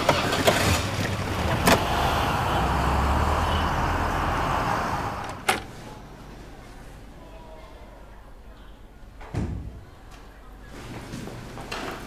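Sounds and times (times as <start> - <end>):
car driving off: 0.0 - 5.6.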